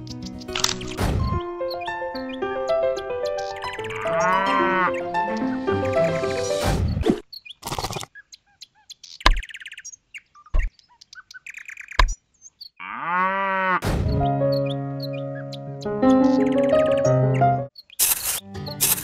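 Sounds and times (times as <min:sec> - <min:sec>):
background music: 0:00.0 - 0:06.8, 0:13.9 - 0:17.7, 0:18.4 - 0:19.0
birds chirping: 0:00.0 - 0:18.0
cow mooing: 0:03.8 - 0:05.0, 0:12.8 - 0:13.8
sharp knocks: 0:13.8 - 0:14.3.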